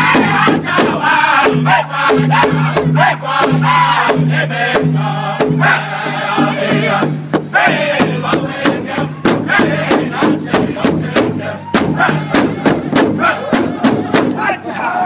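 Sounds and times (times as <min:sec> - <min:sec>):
large drum steady beat: 0:00.0 - 0:14.7
group singing: 0:00.0 - 0:15.0.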